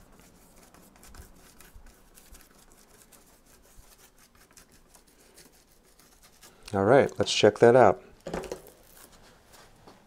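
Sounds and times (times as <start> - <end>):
paintbrush rubbing on canvas: 0.0 - 6.7.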